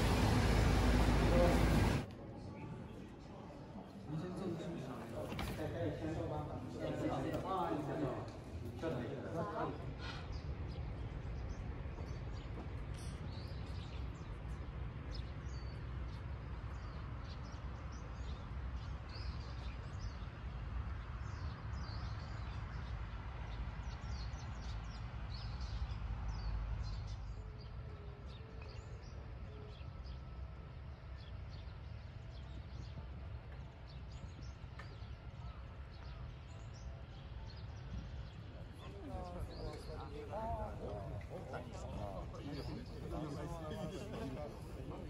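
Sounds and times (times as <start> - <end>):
steady low rumble: 0.0 - 2.1
small birds chirping: 9.6 - 45.0.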